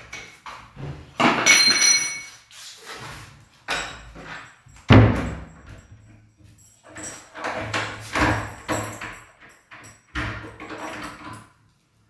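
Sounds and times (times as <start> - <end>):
metallic jangle of lock and keys: 1.4 - 11.6
door closing thud: 4.9 - 5.6.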